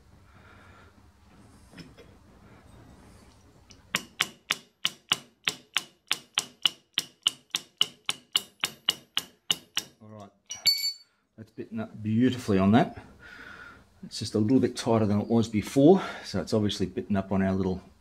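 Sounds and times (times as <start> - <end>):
hammer tapping metal: 3.9 - 11.0.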